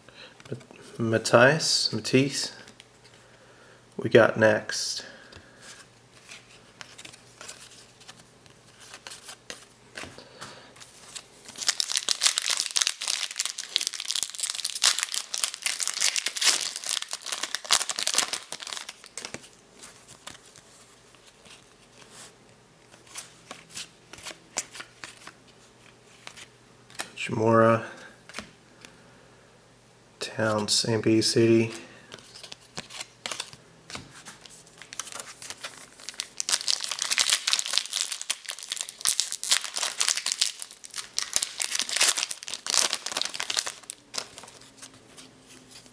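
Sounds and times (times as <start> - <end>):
cards being handled: 5.7 - 22.3, 31.6 - 45.9
plastic wrapper crinkling: 10.9 - 20.6, 34.3 - 45.0.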